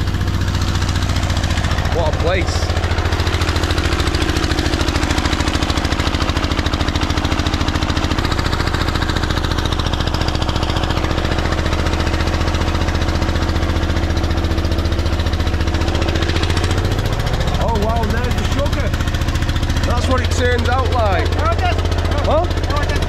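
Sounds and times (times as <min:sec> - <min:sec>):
engine running steadily: 0:00.0 - 0:23.0.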